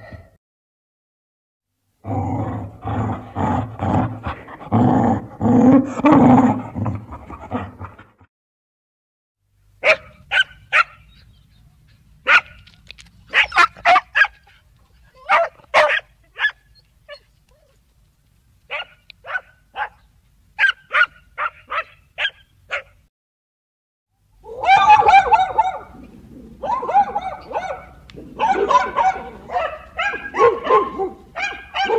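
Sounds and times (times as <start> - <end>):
dog barking: 9.8 - 11.2, 12.2 - 12.7, 13.3 - 14.6, 15.2 - 17.3, 18.7 - 20.0, 20.6 - 23.0, 24.6 - 26.0, 26.6 - 31.9.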